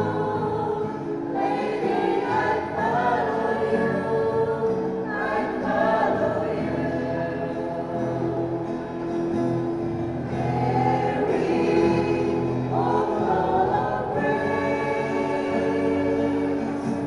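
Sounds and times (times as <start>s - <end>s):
choir singing: 0.0s - 17.0s.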